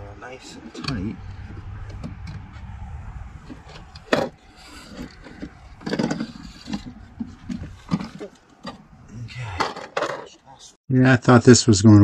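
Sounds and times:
low rumble: 0.8s - 9.4s
blind rustling and knocking: 3.5s - 8.9s.

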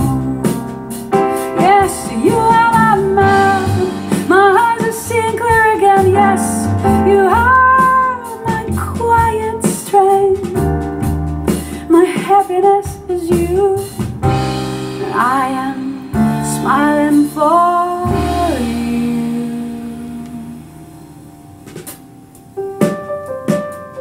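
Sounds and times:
woman singing: 0.0s - 0.8s, 1.4s - 10.9s, 11.7s - 14.2s, 14.9s - 21.2s
piano: 0.0s - 24.0s.

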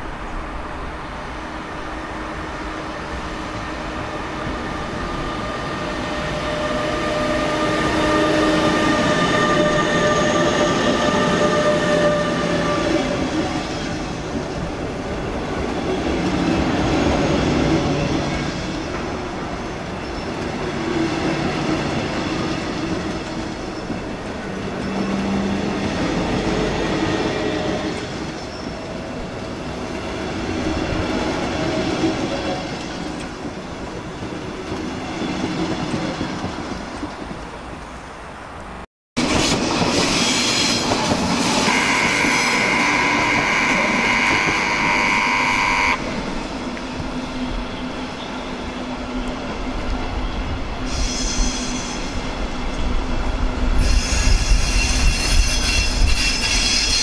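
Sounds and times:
electric locomotive whine: 0.0s - 37.2s, 39.2s - 57.0s
train wheels rumbling on track: 0.0s - 57.0s
high wheel squeals: 50.9s - 52.2s, 53.8s - 57.0s.

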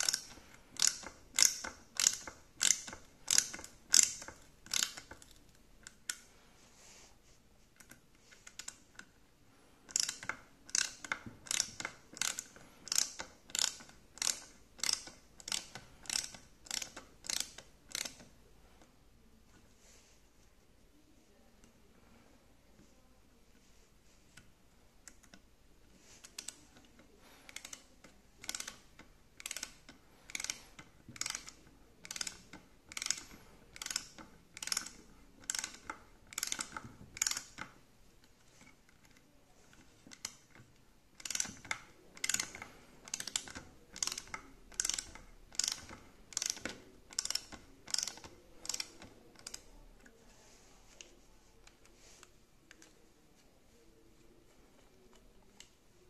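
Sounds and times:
ratchet screwdriver clicking: 0.0s - 6.2s, 9.9s - 18.2s, 27.5s - 37.7s, 41.2s - 49.7s.

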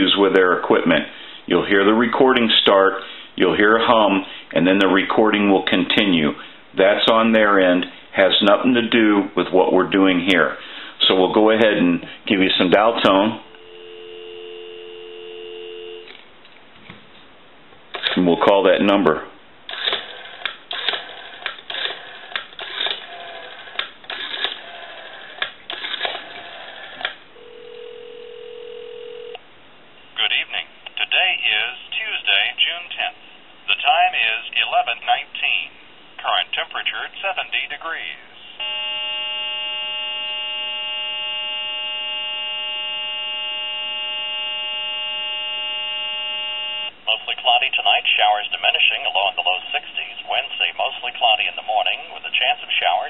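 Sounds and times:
recorded announcement: 0.0s - 16.0s, 18.1s - 19.4s, 30.1s - 53.0s
telephone ringback tone: 13.4s - 16.1s, 27.4s - 29.4s, 38.6s - 46.9s.

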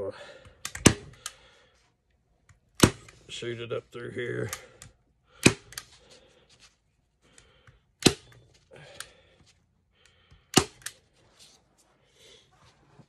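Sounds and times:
rustling of hide: 11.0s - 13.0s.

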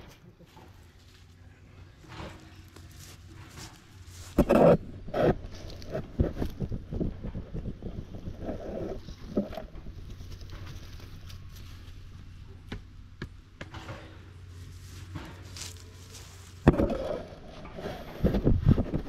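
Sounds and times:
steady low hum: 0.0s - 19.0s
hand tool scraping soil: 2.0s - 6.7s, 13.7s - 19.0s.

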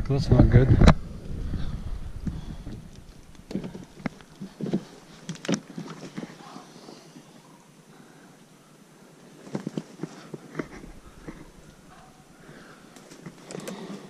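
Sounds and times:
wind rumble on microphone: 0.0s - 4.1s.

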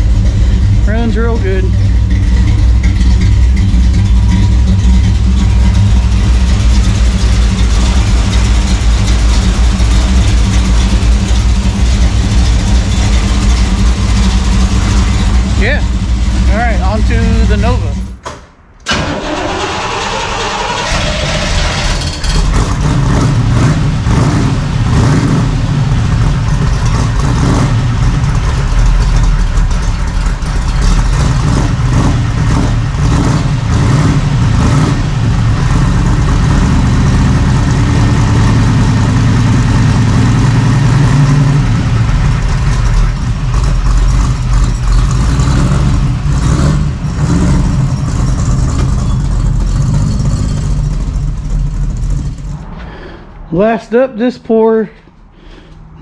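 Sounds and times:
car engine running: 0.0s - 18.2s, 18.9s - 53.8s.

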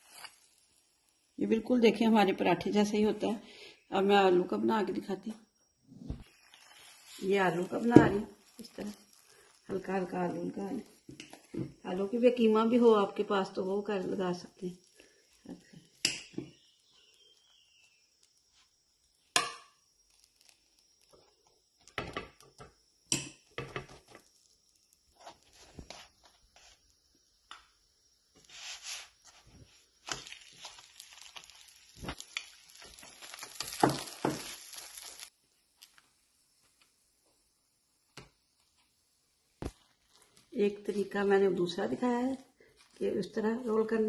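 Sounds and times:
flatbread hissing on griddle: 0.0s - 1.4s, 6.1s - 11.6s, 20.0s - 21.2s, 24.1s - 27.1s, 28.3s - 37.4s
spatula knocks and taps on griddle: 21.8s - 24.1s.

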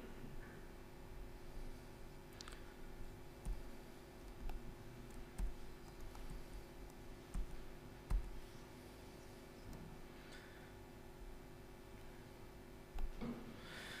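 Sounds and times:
steady low hum: 0.0s - 14.0s
laptop keys clicking: 3.4s - 8.4s.

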